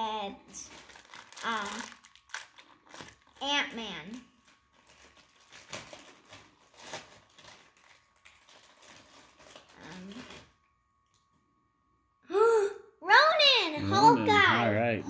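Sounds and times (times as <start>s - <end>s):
foil packaging crinkling: 0.6s - 3.4s, 4.1s - 10.6s.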